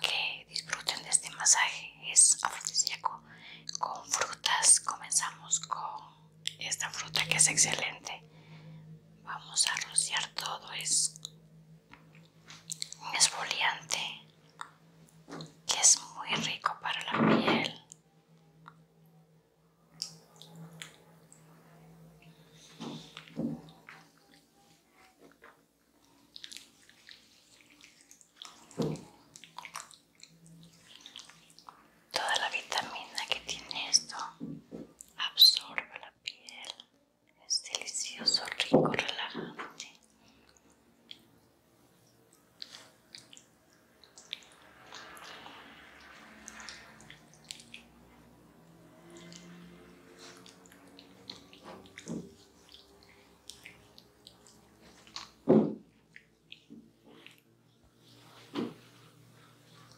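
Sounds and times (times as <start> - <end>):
soft wet smacks: 9.6 - 17.1, 22.6 - 37.0, 37.6 - 59.9.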